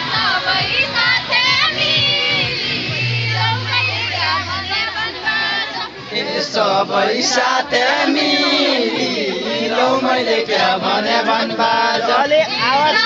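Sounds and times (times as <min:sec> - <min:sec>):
many voices chanting in unison: 0:00.0 - 0:13.0.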